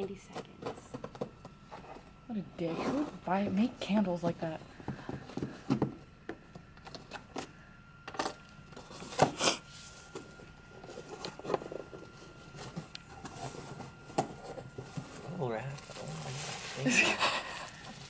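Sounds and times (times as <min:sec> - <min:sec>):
cardboard scrape: 0:02.6 - 0:03.2.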